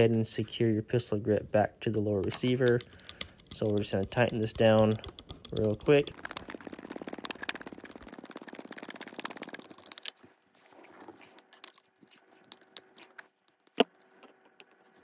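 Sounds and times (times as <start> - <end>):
ratcheting driver clicking: 2.4 - 6.1.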